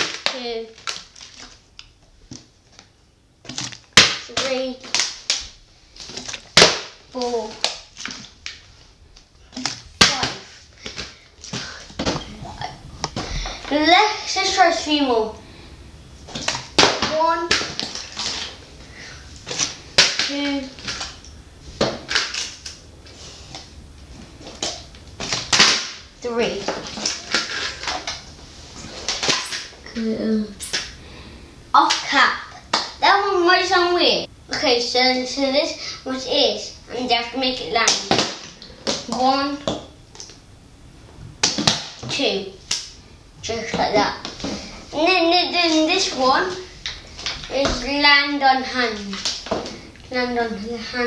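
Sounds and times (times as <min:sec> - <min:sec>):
child counting: 0:04.3 - 0:04.9, 0:07.1 - 0:07.6, 0:10.0 - 0:10.5, 0:13.4 - 0:15.4, 0:17.0 - 0:17.7, 0:20.3 - 0:20.8, 0:26.2 - 0:26.8, 0:29.8 - 0:30.8, 0:31.8 - 0:38.1, 0:39.1 - 0:39.7, 0:42.0 - 0:42.6, 0:43.4 - 0:44.2, 0:44.9 - 0:46.7, 0:47.5 - 0:49.2, 0:50.1 - 0:51.0
plastic bottles landing with knocks: 0:06.2 - 0:07.0.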